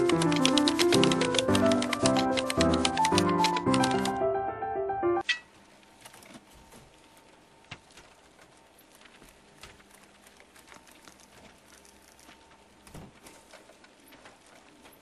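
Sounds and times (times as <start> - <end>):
typing on laptop keyboard: 0.0 - 4.2.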